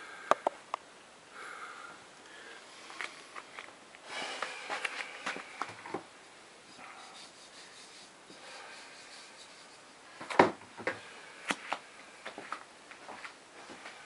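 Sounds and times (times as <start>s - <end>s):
sandals shuffling on carpet: 11.5s - 14.0s.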